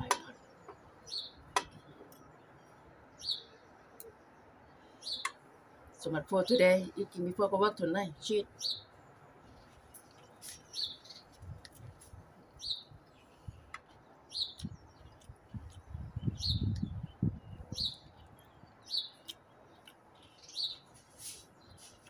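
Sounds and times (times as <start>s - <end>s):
bird chirping: 0.0s - 6.7s, 8.2s - 22.0s
chewing: 19.2s - 20.5s.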